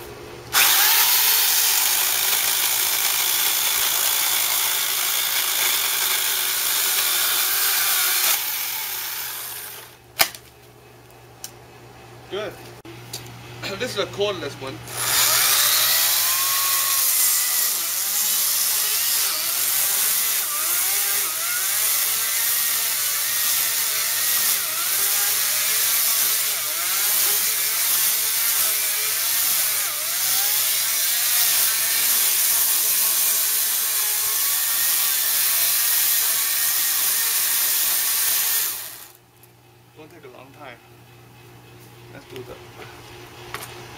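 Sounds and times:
electric chainsaw cutting wood: 0:00.5 - 0:10.0, 0:14.9 - 0:39.2.

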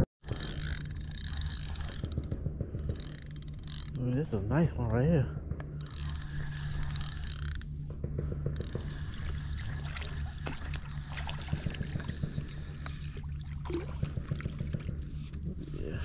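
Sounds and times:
low rumble: 0:00.0 - 0:16.0
fishing reel clicking: 0:00.2 - 0:04.2, 0:05.7 - 0:07.8, 0:08.5 - 0:15.0
fish splashing: 0:08.8 - 0:15.1.

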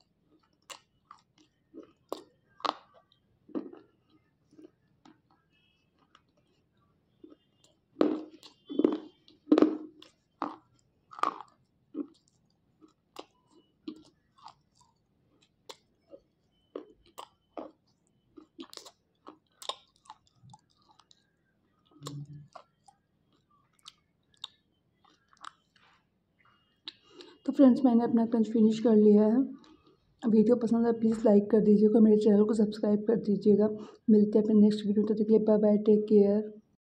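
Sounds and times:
pencils being chewed crunching: 0:00.3 - 0:26.0, 0:29.6 - 0:30.2.

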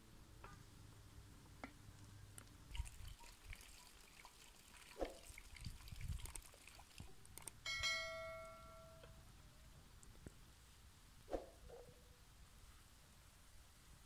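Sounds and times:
notification bell ding: 0:07.7 - 0:09.0.

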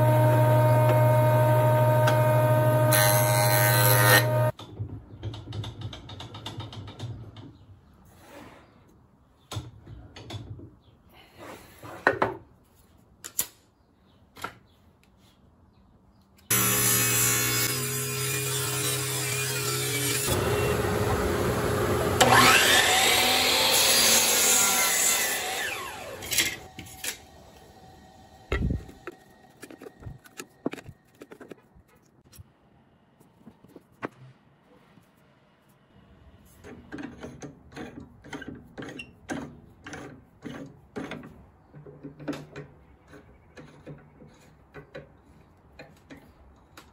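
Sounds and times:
table saw cutting wood: 0:00.0 - 0:04.5, 0:16.5 - 0:29.1.

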